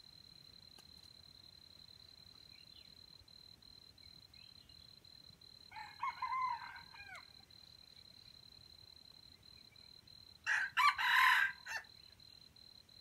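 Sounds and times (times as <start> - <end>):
faint chirps: 0.0 - 5.9.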